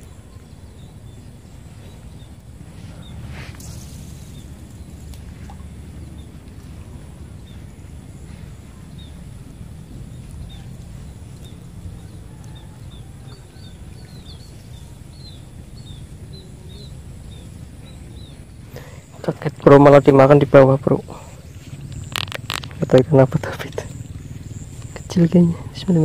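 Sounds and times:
faint steady high whine: 0.0s - 26.0s
low steady rumble: 0.0s - 26.0s
small bird chirping: 7.4s - 26.0s.

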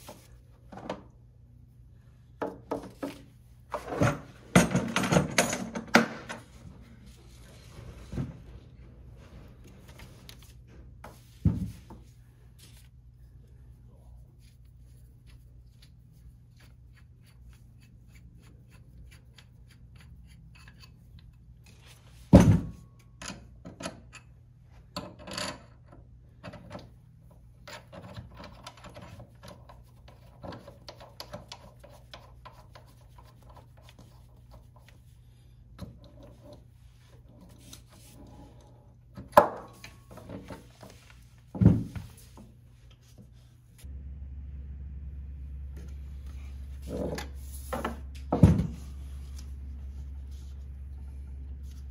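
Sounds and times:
faint low hum: 0.0s - 51.9s
clicks and knocks of metal parts: 3.9s - 6.5s.

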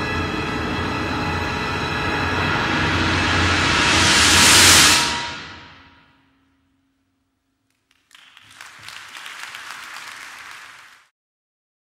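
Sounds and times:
audience applause: 7.7s - 11.1s.

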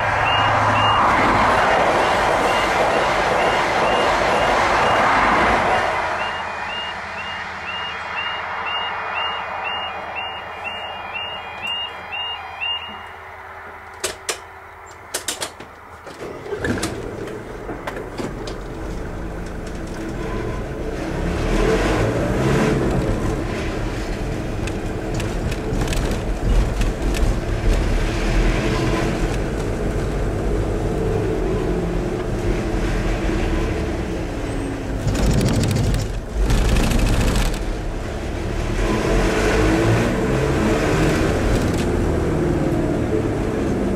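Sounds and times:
wheels rattling over cattle grid: 15.1s - 20.4s, 22.8s - 30.3s, 34.6s - 38.1s
car engine accelerating: 18.9s - 43.9s.

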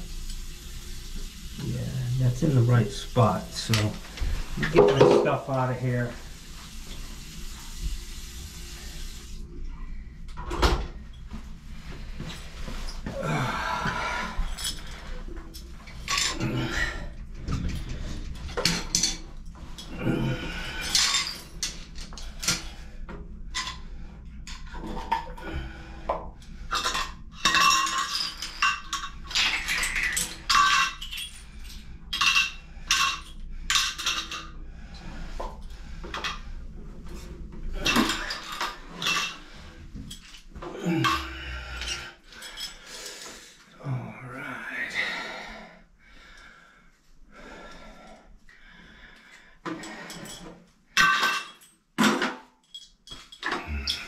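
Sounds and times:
metal tools clinking and rattling: 14.4s - 16.4s, 17.5s - 19.9s, 20.8s - 22.7s, 26.7s - 34.5s, 37.8s - 43.3s, 49.7s - 54.0s.

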